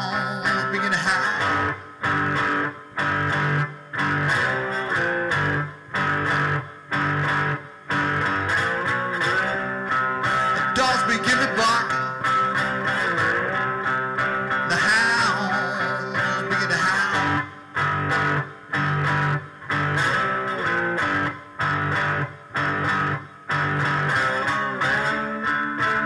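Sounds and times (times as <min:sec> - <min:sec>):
slide guitar blues: 0:00.0 - 0:26.0.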